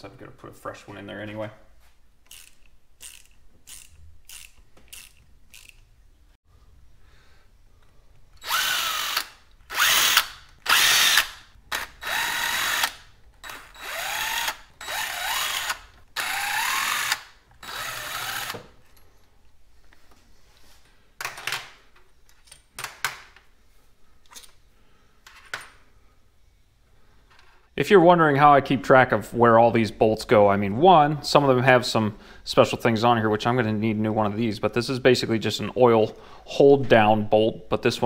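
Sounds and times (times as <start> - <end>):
power driver motor whine: 8.4 - 11.4.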